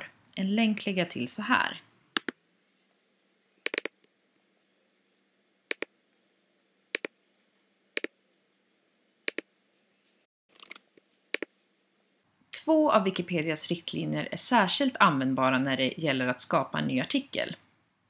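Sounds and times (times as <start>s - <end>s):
computer mouse button clicks: 3.7s - 3.9s.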